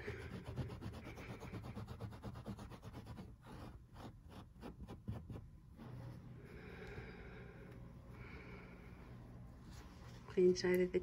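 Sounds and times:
fingers scrubbing carpet: 0.0s - 6.4s.

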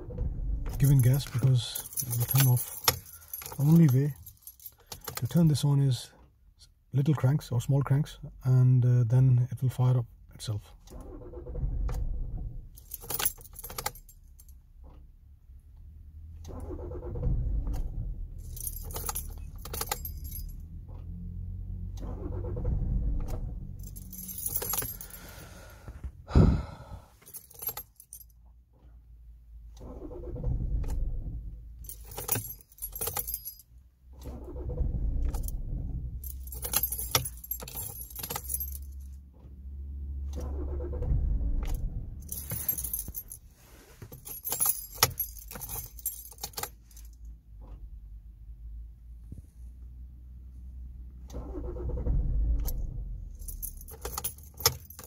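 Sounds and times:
diesel engine cranking: 0.0s - 6.4s, 10.6s - 48.6s, 50.0s - 55.0s
keyring jangling: 0.8s - 5.6s, 12.8s - 14.6s, 18.4s - 20.8s, 23.6s - 25.6s, 27.2s - 28.4s, 31.8s - 33.7s, 36.2s - 39.1s, 42.2s - 47.2s, 53.3s - 55.0s.

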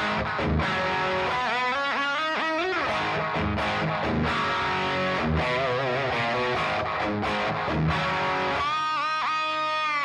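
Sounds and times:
overdriven electric guitar riff: 0.0s - 10.0s.

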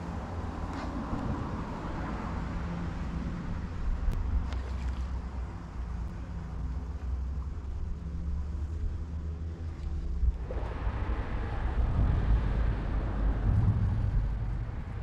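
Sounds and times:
low rumble with engine hum: 0.0s - 15.0s
wind buffeting microphone: 7.8s - 15.0s.

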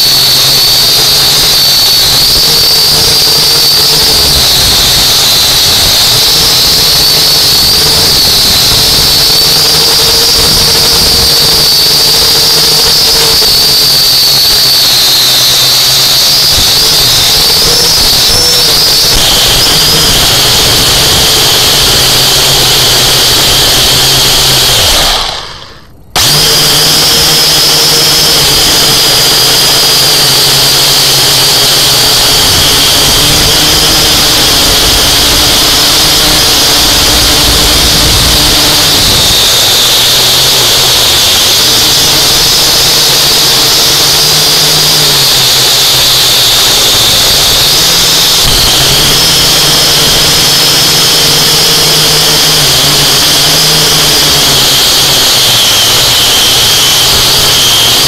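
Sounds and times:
drone propellers whining: 0.0s - 58.0s.

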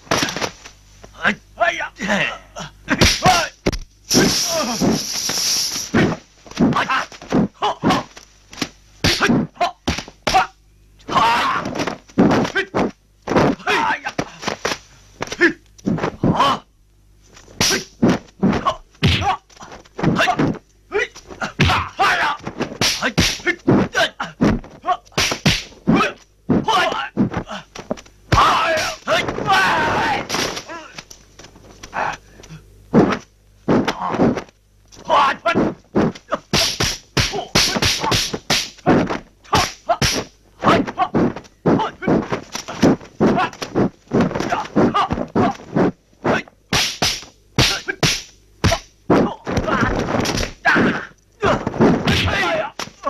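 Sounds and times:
fighters shouting and grunting: 1.2s - 5.0s, 5.9s - 8.2s, 9.1s - 12.9s, 13.5s - 14.5s, 17.6s - 31.0s, 31.9s - 32.2s, 35.0s - 46.5s, 47.6s - 48.1s, 48.7s - 53.0s
punch and kick impacts: 2.9s - 5.0s, 6.0s - 10.5s, 17.6s - 19.4s, 21.5s - 30.7s, 35.6s - 53.0s.

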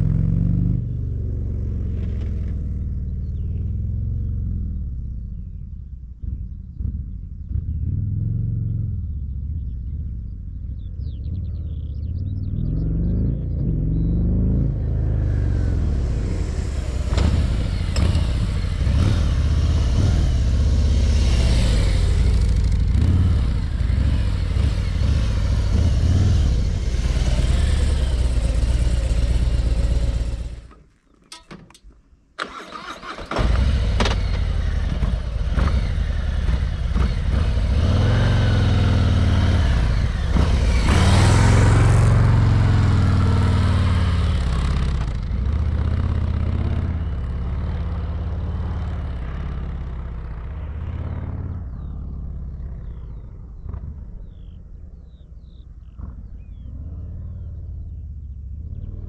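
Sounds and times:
motorcycle engine running at low revs: 0.0s - 30.8s, 33.4s - 59.0s.

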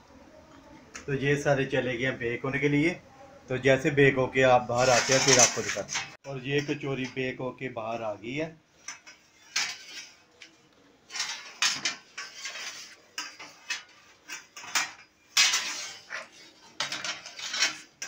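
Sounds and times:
metal baking trays clattering: 4.3s - 7.4s, 8.8s - 18.0s.

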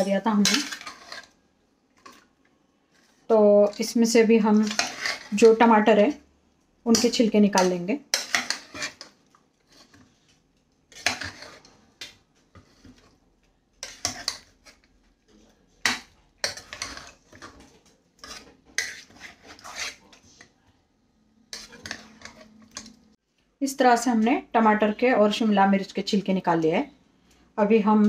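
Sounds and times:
metal spoon scraping a pot: 0.0s - 1.4s, 2.9s - 6.1s, 6.9s - 10.2s, 10.9s - 11.9s, 12.5s - 13.2s, 13.8s - 15.0s, 15.8s - 20.5s, 21.5s - 23.0s.

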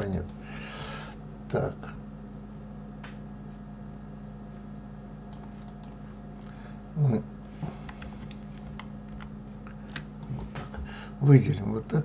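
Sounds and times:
low hum: 0.0s - 12.0s
keyboard and mouse clicks: 5.3s - 6.0s, 7.8s - 10.7s.

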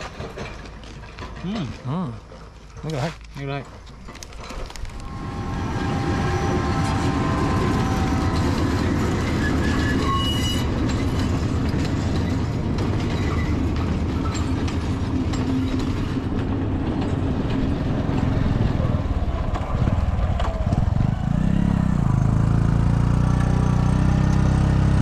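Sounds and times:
train wheels rumbling on rails: 0.0s - 25.0s
high-pitched wheel squeal: 4.8s - 11.5s.

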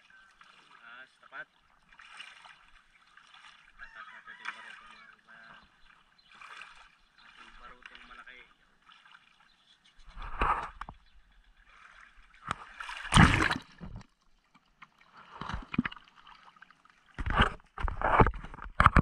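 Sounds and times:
shallow water sloshing: 0.0s - 19.0s
rubbing and knocking on camera: 10.0s - 11.1s, 13.2s - 14.1s, 17.2s - 19.0s.

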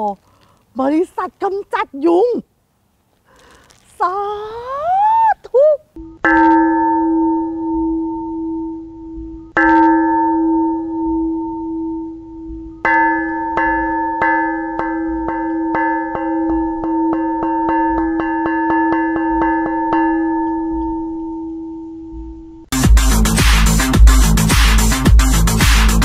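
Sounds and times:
bell struck and ringing: 6.2s - 22.6s.

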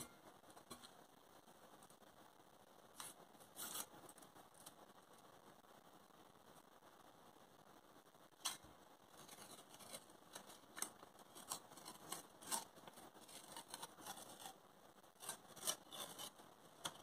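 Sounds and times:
paper crackling as peeled: 2.9s - 4.8s, 8.4s - 17.0s.

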